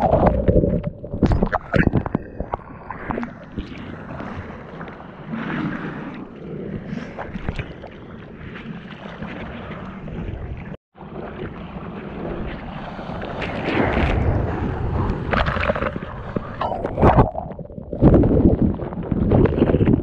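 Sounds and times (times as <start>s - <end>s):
seawater sloshing and splashing: 0.0s - 14.6s
wind buffeting microphone: 12.0s - 20.0s.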